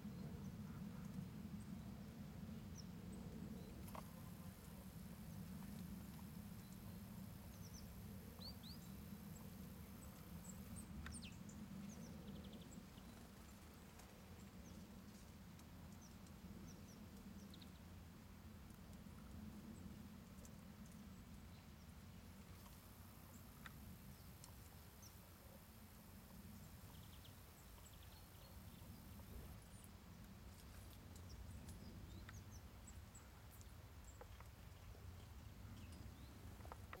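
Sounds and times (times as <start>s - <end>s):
songbirds chirping: 0.0s - 17.9s, 18.7s - 37.0s.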